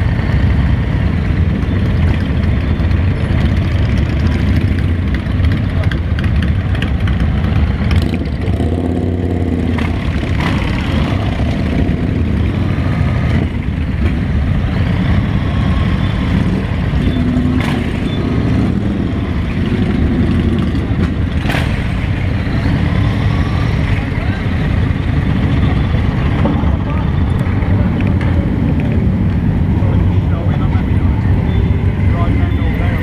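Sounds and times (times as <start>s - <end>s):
motorcycle engines idling and revving: 0.0s - 33.0s.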